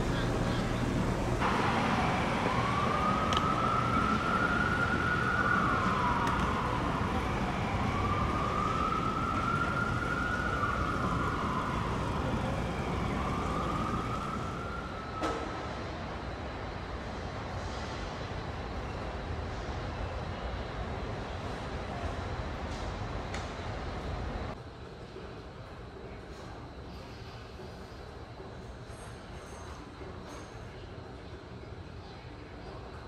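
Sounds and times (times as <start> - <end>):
city street traffic: 0.0 - 32.6
siren wailing: 1.4 - 15.6.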